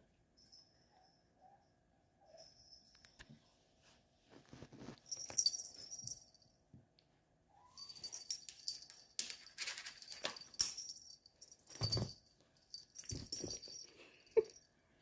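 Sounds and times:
rustling and scratching on carpet: 3.8 - 5.7.

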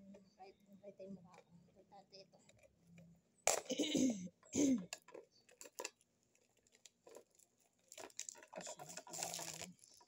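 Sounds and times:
plastic wrapping crinkling: 5.0 - 10.0.

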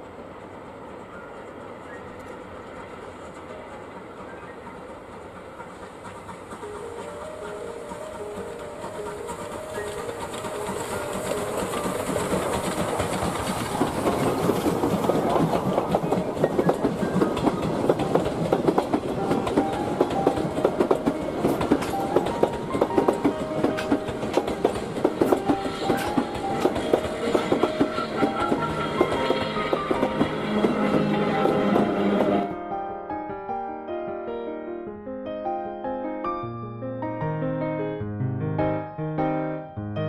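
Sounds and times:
passenger train passing: 0.0 - 33.9
wheels clacking over rail joints: 1.6 - 32.5.

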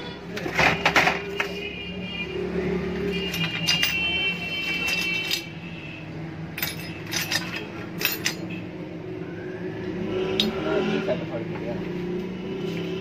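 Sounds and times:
metal parts clinking: 3.0 - 5.7, 6.5 - 8.6.

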